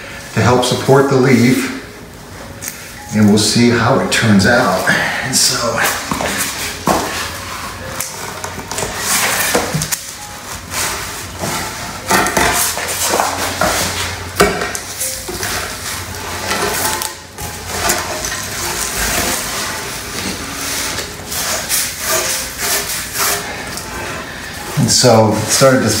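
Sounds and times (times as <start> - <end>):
plastic sheeting rustling: 5.7 - 26.0
concrete scraping: 5.8 - 26.0.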